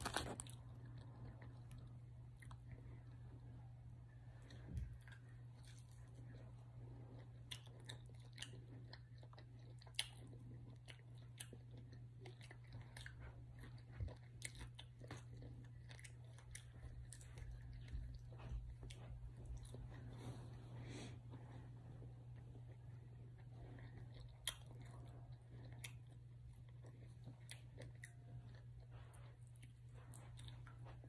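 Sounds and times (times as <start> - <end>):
person chewing and crunching: 0.0 - 31.0
steady low hum: 0.0 - 31.0.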